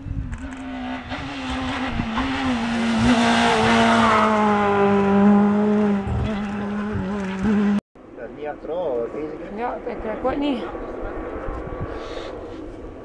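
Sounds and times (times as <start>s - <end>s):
rally car passing at high revs: 0.6s - 7.8s.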